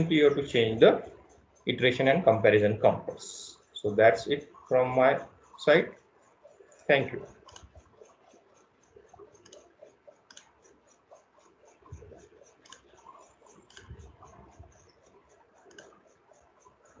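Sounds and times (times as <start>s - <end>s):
soft high ticks: 0.0s - 17.0s
computer mouse clicking: 2.9s - 17.0s
soft low thumps: 11.9s - 12.2s.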